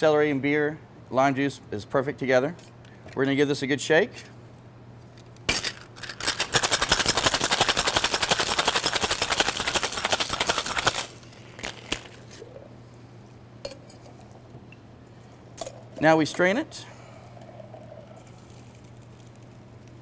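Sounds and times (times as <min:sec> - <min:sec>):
ice rattling in cocktail shaker: 0:05.5 - 0:12.3.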